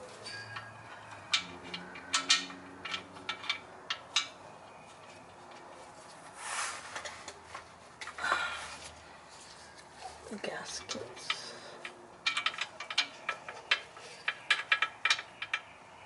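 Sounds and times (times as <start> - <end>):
short rustle: 5.8 - 7.7.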